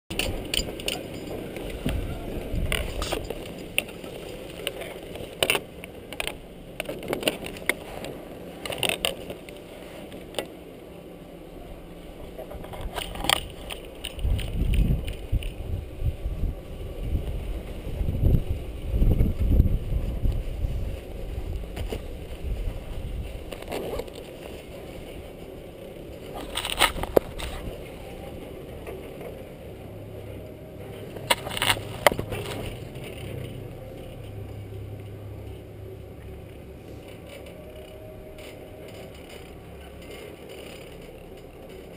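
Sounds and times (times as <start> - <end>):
wind buffeting microphone: 0.1 - 8.6, 11.3 - 34.4.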